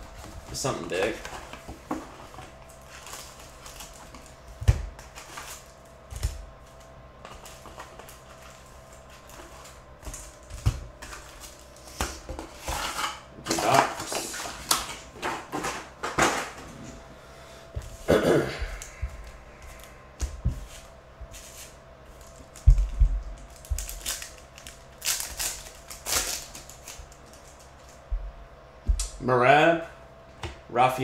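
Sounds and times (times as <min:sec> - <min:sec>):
foil wrappers crinkling: 0:00.0 - 0:12.8, 0:18.7 - 0:28.1
cardboard knocks: 0:20.2 - 0:20.7.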